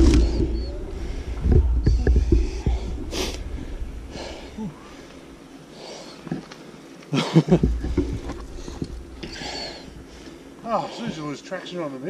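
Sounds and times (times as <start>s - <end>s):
low rumble: 0.0s - 5.6s, 7.5s - 10.6s
heavy breathing exhales: 0.1s - 6.4s, 7.9s - 11.2s.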